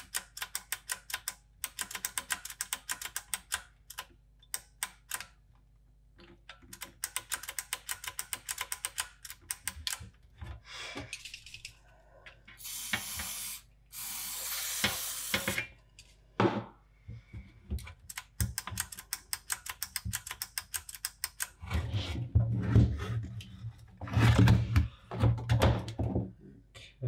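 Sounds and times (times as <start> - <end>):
spray can hissing: 12.6 - 15.6.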